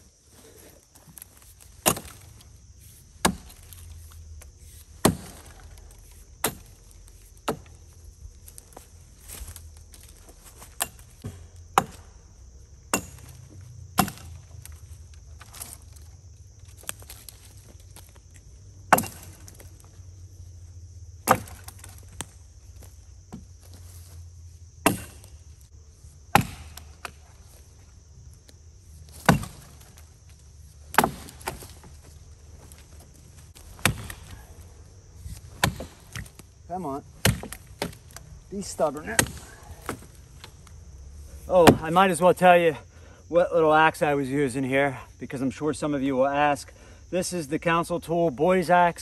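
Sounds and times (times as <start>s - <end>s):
axe chopping into wood: 1.8s - 2.3s, 3.2s - 3.8s, 5.0s - 5.8s, 6.4s - 6.8s, 7.4s - 7.8s, 10.6s - 12.2s, 12.9s - 14.4s, 18.9s - 19.7s, 21.2s - 22.4s, 24.8s - 25.4s, 26.3s - 27.4s, 29.1s - 30.1s, 30.9s - 32.0s, 33.6s - 34.6s, 35.3s - 36.5s, 37.2s - 38.2s, 39.0s - 40.5s, 41.5s - 42.0s.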